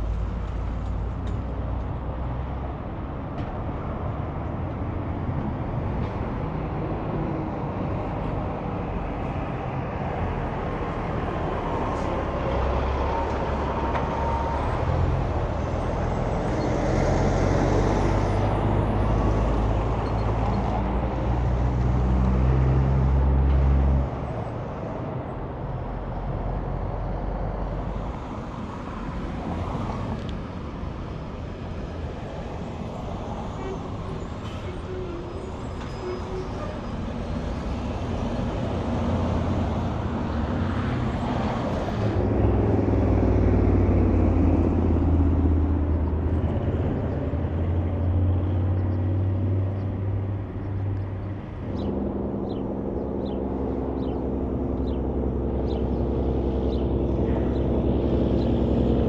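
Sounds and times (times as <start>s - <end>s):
trucks passing on highway: 0.0s - 59.0s.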